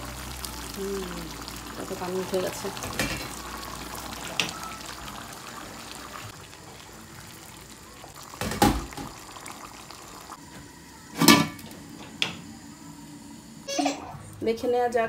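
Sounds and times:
curry bubbling in a pot: 0.0s - 10.4s.

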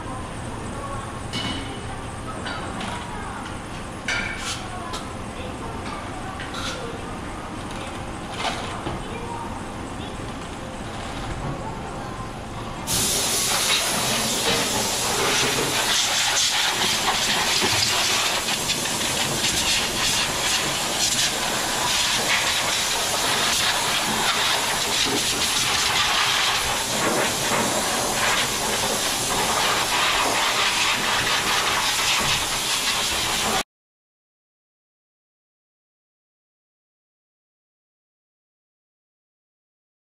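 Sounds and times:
loud hiss of cleaning equipment: 12.8s - 33.6s.

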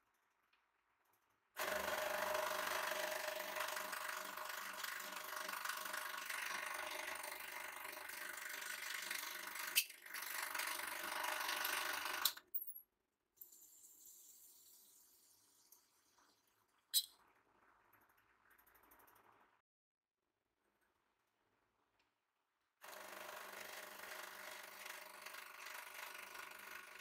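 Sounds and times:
hydraulic pump motor running: 1.6s - 12.3s.

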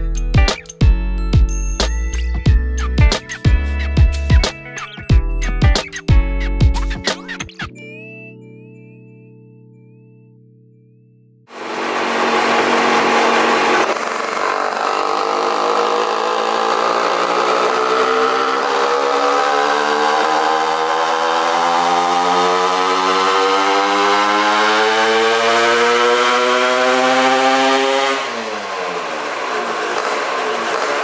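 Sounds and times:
scooter engine revving on dyno: 11.5s - 31.0s.

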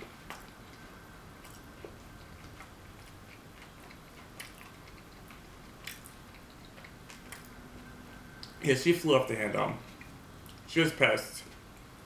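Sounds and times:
soft chewing: 0.0s - 8.6s, 9.4s - 10.7s, 11.4s - 12.0s.

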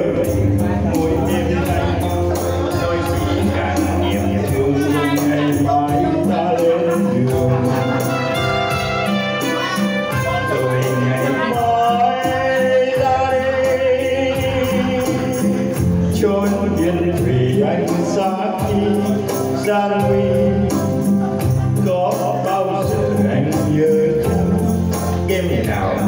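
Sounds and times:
man singing: 0.0s - 26.0s
tambourine shaking: 17.8s - 26.0s.

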